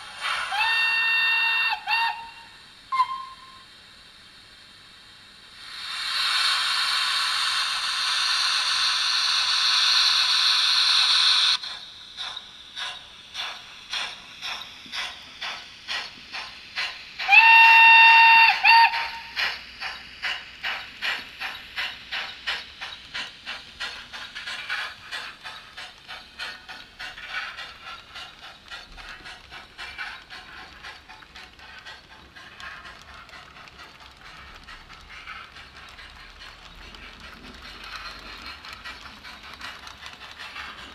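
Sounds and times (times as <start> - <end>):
hiss of steam: 0.0 - 40.9
steam whistle: 0.4 - 3.7, 17.2 - 19.4
steam exhaust chuffs: 5.0 - 40.9.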